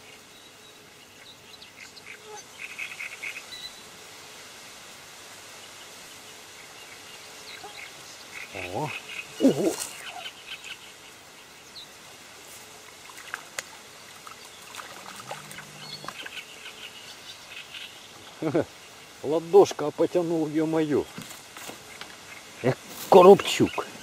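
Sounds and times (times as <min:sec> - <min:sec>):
faint insect noise: 0:00.0 - 0:24.0
fly buzzing: 0:05.2 - 0:19.2
short vocal exclamations: 0:08.6 - 0:10.0.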